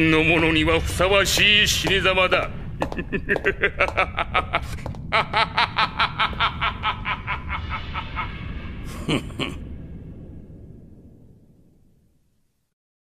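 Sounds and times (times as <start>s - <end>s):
man chuckling low: 2.8s - 9.7s.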